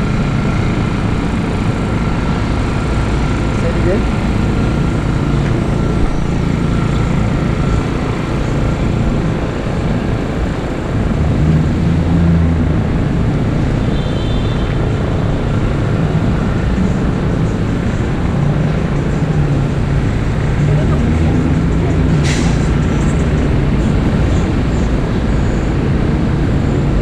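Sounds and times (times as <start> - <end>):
traffic engines rumbling: 0.0 - 27.0.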